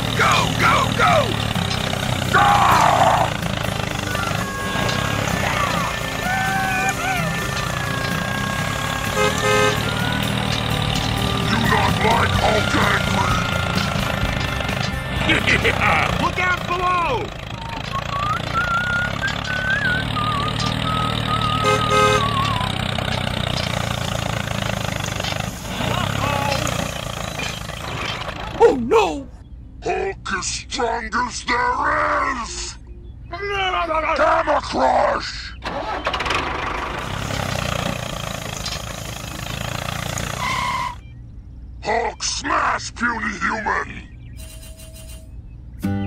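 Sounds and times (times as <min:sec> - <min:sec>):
tractor engine rumble: 0:00.0 - 0:46.0
whistle-like music: 0:17.5 - 0:22.8, 0:40.4 - 0:41.1, 0:44.4 - 0:46.0.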